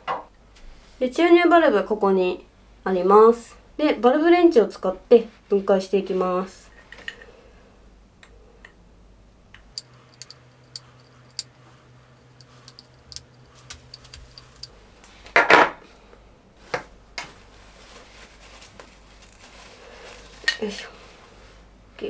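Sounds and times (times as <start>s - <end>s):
small metallic clicks: 9.6s - 11.5s, 12.3s - 14.7s.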